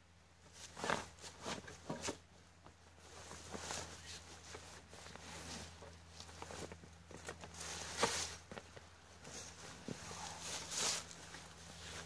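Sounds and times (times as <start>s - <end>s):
rustling in dry leaves: 3.0s - 12.0s.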